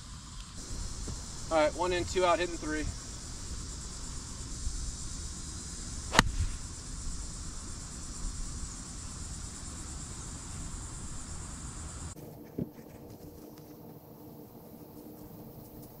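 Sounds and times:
insects buzzing: 0.0s - 16.0s
golf club striking ball: 6.1s - 6.6s.

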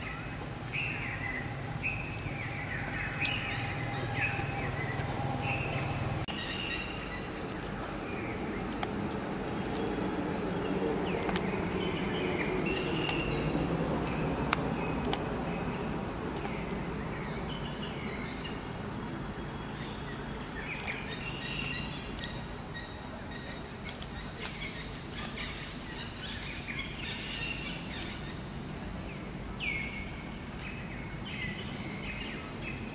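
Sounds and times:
high chirping calls: 0.0s - 7.5s.

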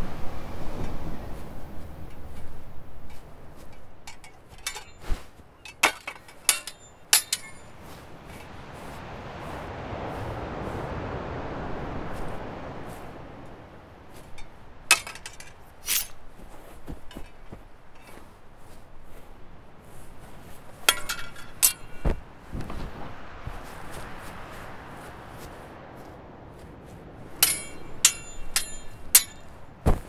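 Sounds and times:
broad rush of noise: 0.0s - 30.0s
swords clashing: 4.1s - 7.7s, 14.9s - 16.2s, 20.9s - 22.0s, 27.4s - 29.6s.

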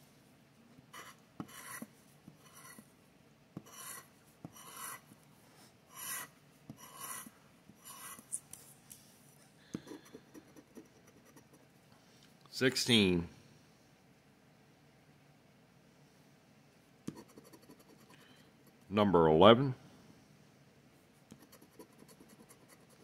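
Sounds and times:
scratching lottery ticket: 1.0s - 2.8s, 3.6s - 5.0s, 21.3s - 23.0s.

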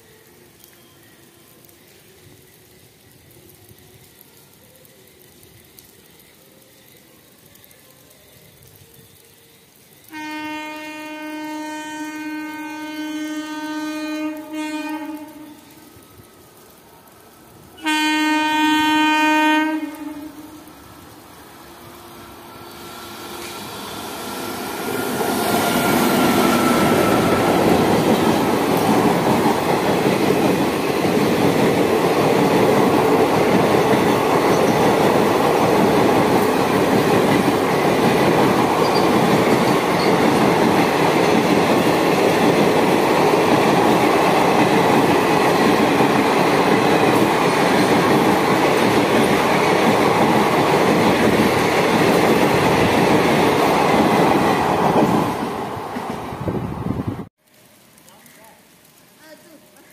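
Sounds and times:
train passing at high speed: 10.0s - 57.3s.

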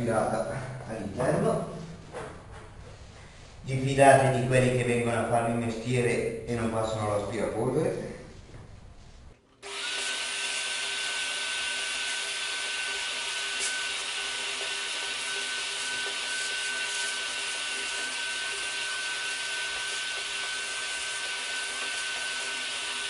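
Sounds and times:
vacuum cleaner whining: 9.6s - 23.0s.

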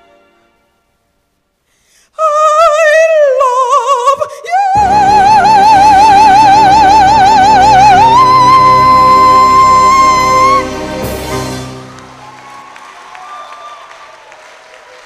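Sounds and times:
woman singing with vibrato: 2.1s - 11.0s.

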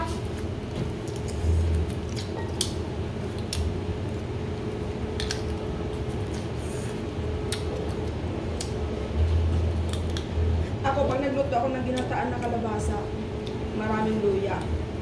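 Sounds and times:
steady low hum: 0.0s - 15.0s
crab shell clicking and cracking: 1.0s - 3.7s, 5.1s - 5.6s, 9.8s - 10.3s.

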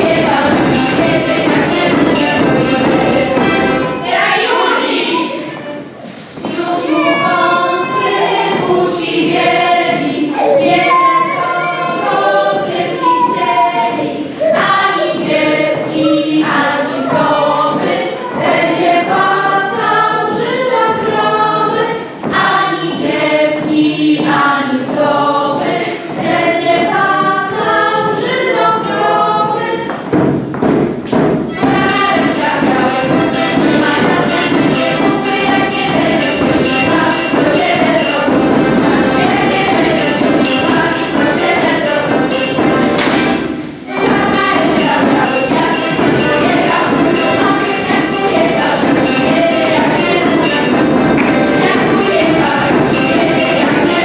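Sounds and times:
sharp bright rhythmic strikes: 0.0s - 11.2s, 31.4s - 54.0s
group singing in chorus: 0.0s - 30.2s, 31.5s - 54.0s
steps thudding on wooden stage: 6.3s - 7.7s, 29.9s - 53.8s.

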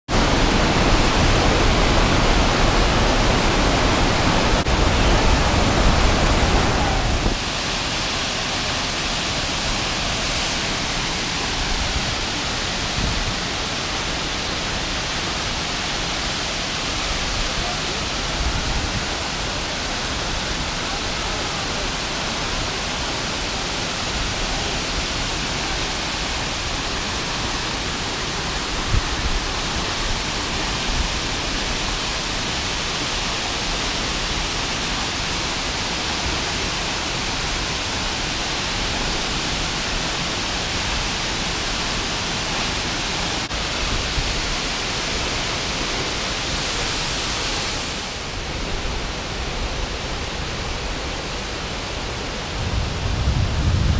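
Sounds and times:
waterfall rushing: 0.1s - 53.9s.

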